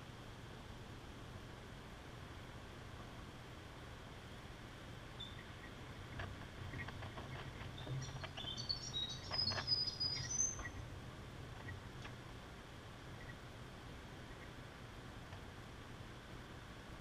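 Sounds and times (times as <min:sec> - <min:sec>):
high bird chirps: 0:05.2 - 0:05.8, 0:07.7 - 0:10.8.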